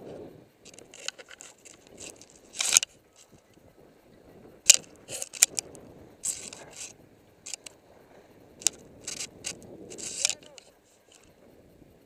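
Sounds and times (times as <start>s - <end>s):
sharp ski clicks: 0.6s - 3.5s, 4.7s - 7.8s, 8.6s - 11.3s
skis scraping on snow: 8.6s - 11.3s.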